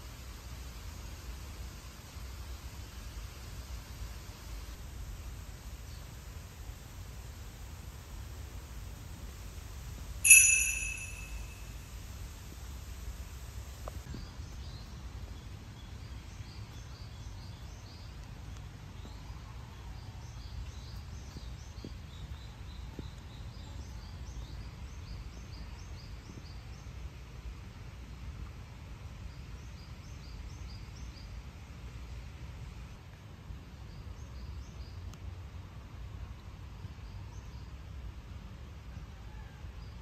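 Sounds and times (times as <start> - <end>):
bird chirping: 10.3 - 11.6.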